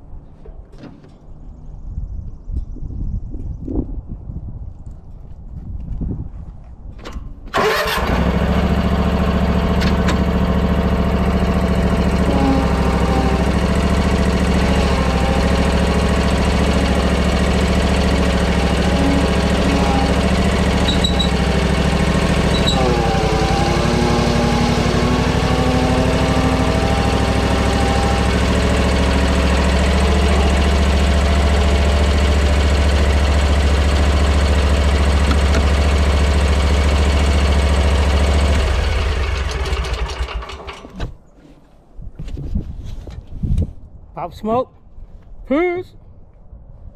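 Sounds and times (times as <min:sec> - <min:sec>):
lawn mower engine: 0:07.5 - 0:41.2.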